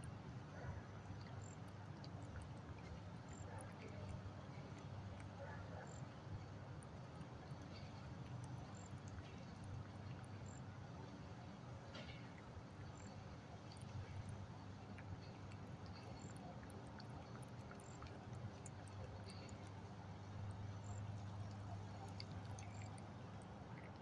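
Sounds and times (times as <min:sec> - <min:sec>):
cat chewing and licking: 0:00.0 - 0:24.0
low steady rumble: 0:00.0 - 0:24.0
wet smacks and clicks: 0:11.9 - 0:24.0.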